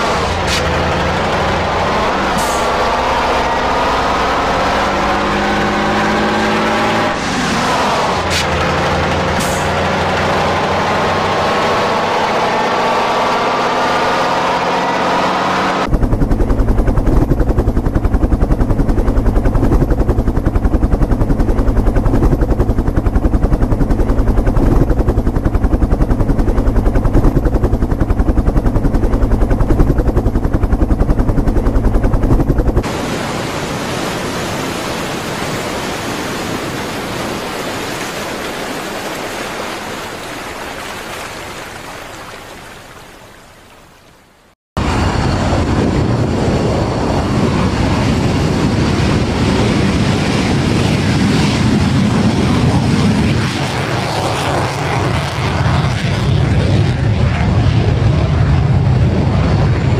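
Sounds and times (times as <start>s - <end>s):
heavy truck engines whining: 0.0s - 17.5s
helicopter rotor beating: 0.0s - 43.4s, 44.8s - 59.9s
sea and wind rushing: 0.0s - 59.9s.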